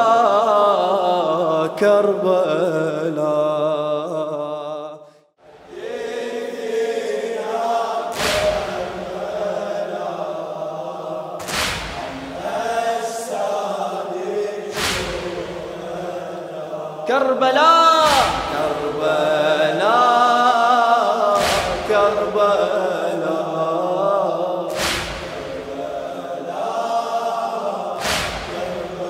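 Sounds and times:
men chanting a lament: 0:00.0 - 0:05.0, 0:05.6 - 0:29.0
heavy slap-like beat: 0:08.2 - 0:09.2, 0:11.4 - 0:12.6, 0:14.7 - 0:16.0, 0:18.0 - 0:19.0, 0:21.3 - 0:22.6, 0:24.7 - 0:26.2, 0:28.0 - 0:29.0.

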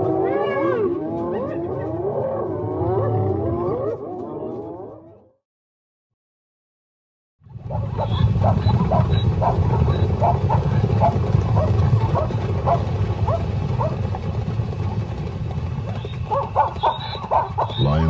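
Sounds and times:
herd hoofbeats galloping: 0:07.5 - 0:18.0
zebra barks: 0:07.7 - 0:14.0, 0:16.2 - 0:18.0.

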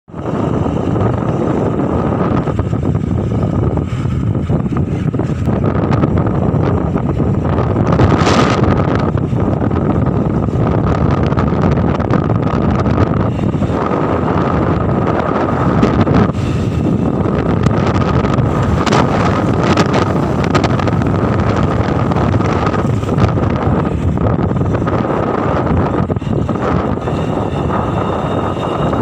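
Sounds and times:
road noise: 0:00.0 - 0:29.0
motorcycle engine running: 0:00.1 - 0:29.0
wind buffeting microphone: 0:00.1 - 0:29.0.

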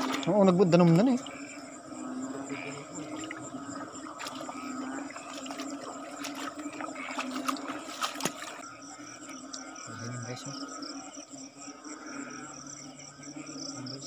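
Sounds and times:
frogs calling: 0:00.0 - 0:14.0
insects calling: 0:00.0 - 0:14.0
squelching steps in mud: 0:05.2 - 0:08.6.

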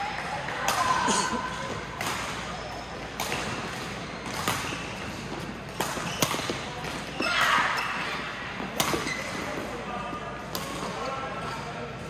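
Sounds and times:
rackets hitting shuttlecock: 0:01.9 - 0:09.7, 0:10.4 - 0:11.0.

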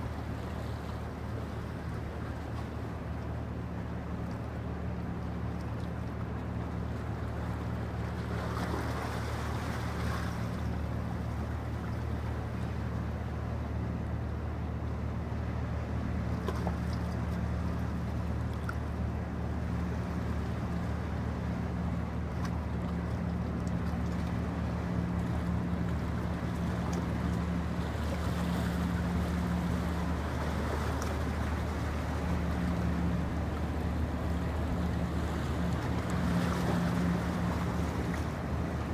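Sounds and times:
ship diesel engines droning: 0:00.0 - 0:38.9.

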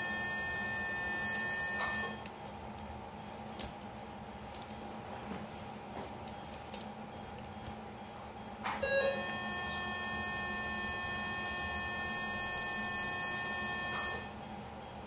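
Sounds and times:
high-pitched activation tone with hiss: 0:00.0 - 0:02.2, 0:08.8 - 0:15.0
faint steady hum: 0:00.0 - 0:15.0.

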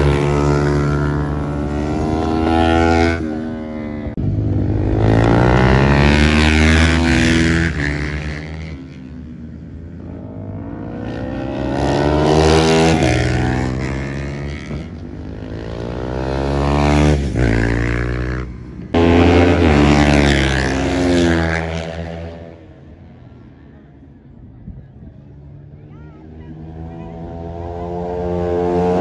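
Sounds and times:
racing motorcycles passing at high revs: 0:00.0 - 0:23.2, 0:26.3 - 0:29.0.

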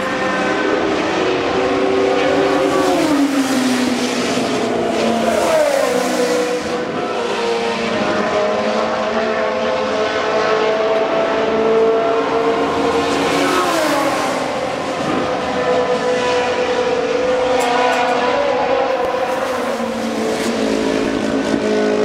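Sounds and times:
racing car engines at speed: 0:00.0 - 0:22.0.

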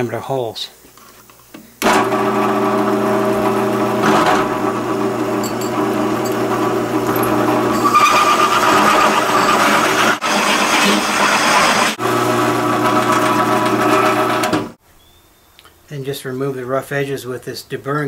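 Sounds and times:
hole saw cutting aluminium: 0:01.8 - 0:14.7
drill press humming: 0:01.8 - 0:14.8.

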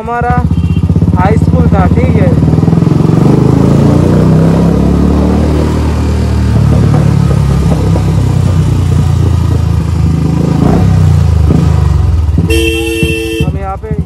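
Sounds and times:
motorcycle engine running: 0:00.0 - 0:14.0
wind noise on microphone: 0:02.6 - 0:13.8.

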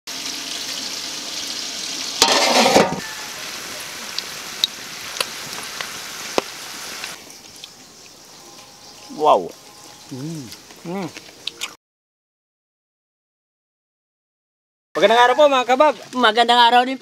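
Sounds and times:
oil popping and crackling: 0:00.1 - 0:08.7, 0:15.4 - 0:17.0
ribs sizzling in hot oil: 0:00.1 - 0:11.4, 0:15.0 - 0:17.0.

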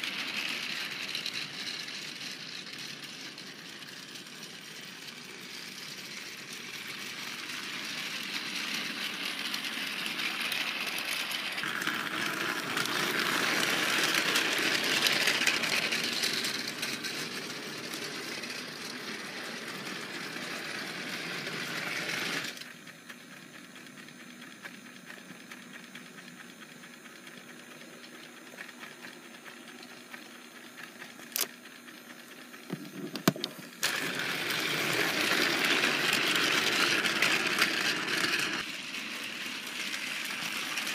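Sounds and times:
toy train motor whirring: 0:00.0 - 0:40.9.

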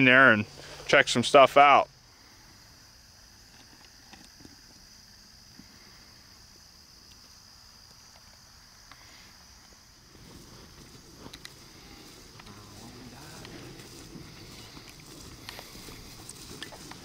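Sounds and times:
insects trilling: 0:00.0 - 0:17.0
low rustling: 0:10.0 - 0:17.0.

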